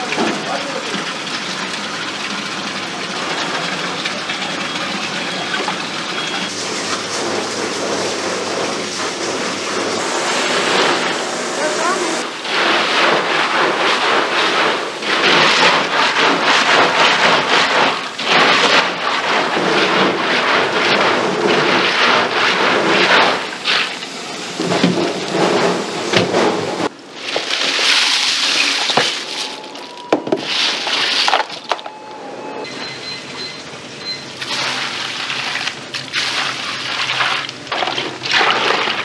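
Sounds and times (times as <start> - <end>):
water running in a sink: 0.0 - 26.6.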